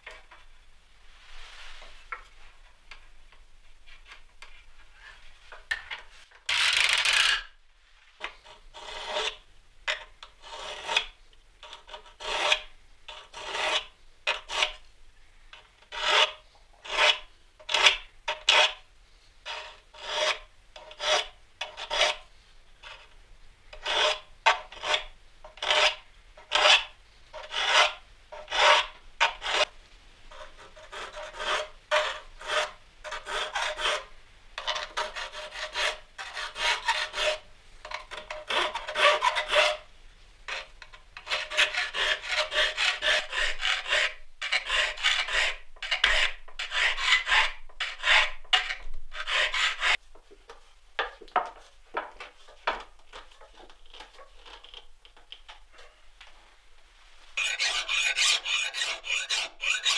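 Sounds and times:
file rasping on saw teeth: 11.9s - 14.8s, 40.5s - 50.0s, 57.4s - 59.9s.

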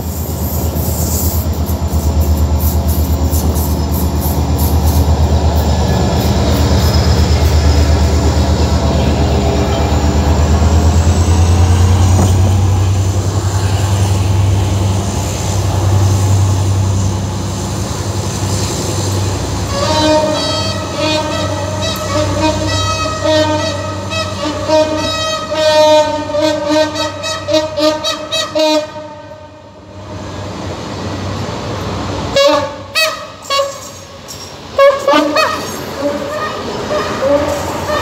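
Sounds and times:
diesel locomotive engine drone: 0.0s - 38.0s
train coaches rolling by: 0.0s - 38.0s
train horn: 19.7s - 29.8s, 32.3s - 34.2s, 34.8s - 38.0s.

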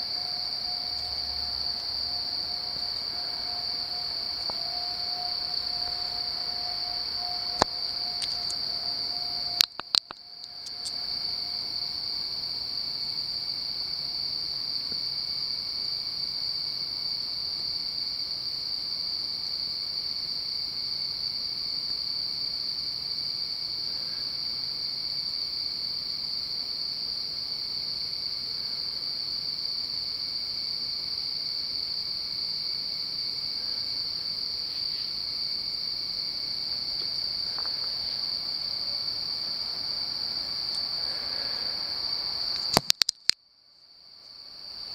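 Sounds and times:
night insects trilling: 0.0s - 44.9s
sharp clicks: 9.6s - 11.0s, 42.6s - 43.4s.

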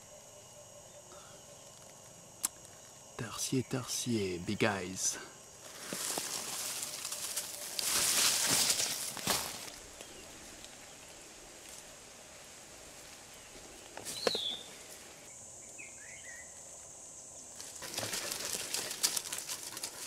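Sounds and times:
feet rustling through undergrowth: 5.6s - 15.2s.

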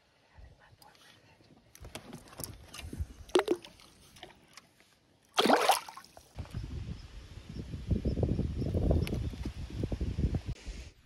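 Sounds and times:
fish splashing into water: 5.4s - 6.2s.

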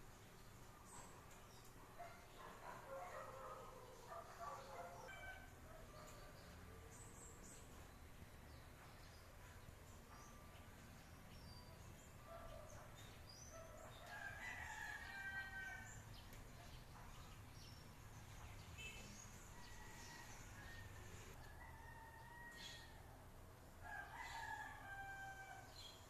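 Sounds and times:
faint rooster crowing: 13.6s - 16.1s, 18.8s - 23.2s, 23.8s - 26.0s.

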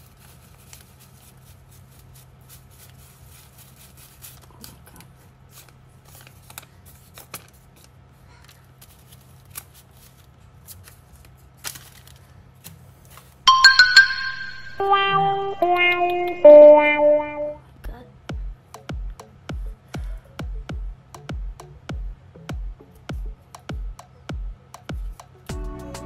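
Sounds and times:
banknotes rustling: 0.0s - 13.4s
chiming jingle: 13.5s - 17.5s.

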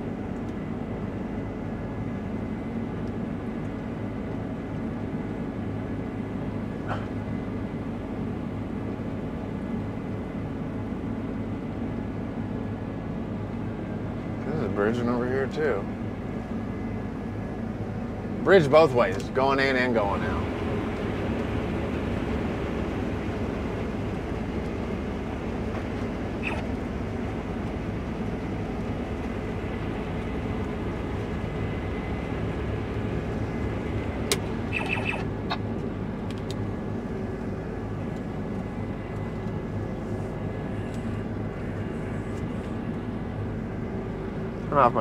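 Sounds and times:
combine harvester engine humming: 0.0s - 45.0s
brief high tone: 34.7s - 35.2s.

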